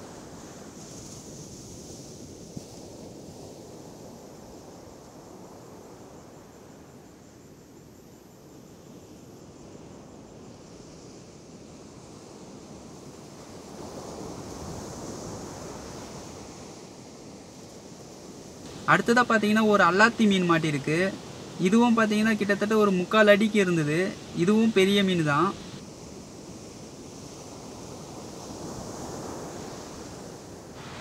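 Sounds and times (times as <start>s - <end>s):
waves breaking on shore: 0.0s - 7.2s, 9.6s - 31.0s
wind on microphone: 27.2s - 31.0s.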